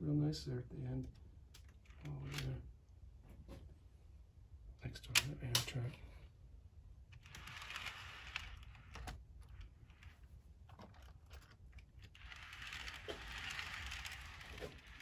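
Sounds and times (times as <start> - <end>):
plastic clicks and rattles: 7.2 - 15.0.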